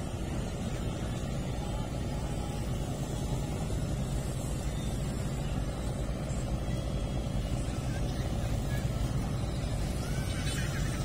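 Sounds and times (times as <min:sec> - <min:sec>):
tugboat engine drone: 0:00.0 - 0:11.0.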